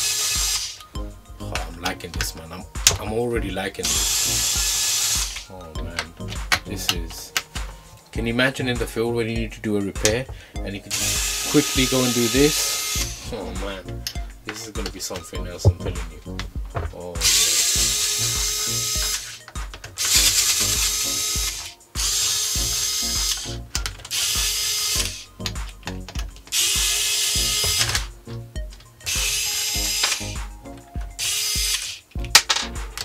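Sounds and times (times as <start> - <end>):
electric screwdriver whirring: 0.0 - 0.9, 3.9 - 5.5, 10.9 - 13.3, 17.2 - 25.3, 26.5 - 28.1, 29.1 - 30.4, 31.2 - 32.4.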